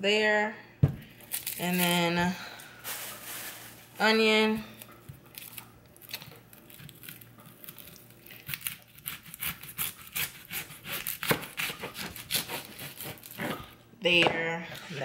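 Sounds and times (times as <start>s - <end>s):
knife cutting onion on board: 8.4s - 14.9s.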